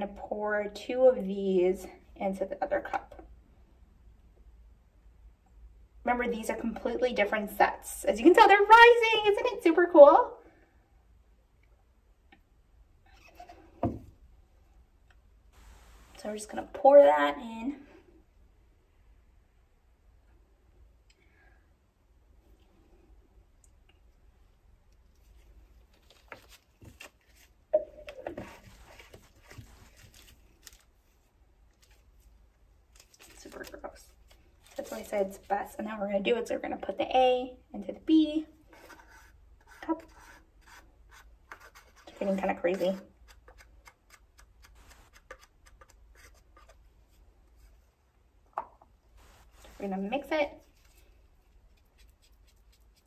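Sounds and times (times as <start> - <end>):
rustling and scraping: 28.2 - 35.5, 41.5 - 48.0, 49.1 - 53.0
wooden stick scraping paper cups: 38.7 - 46.9.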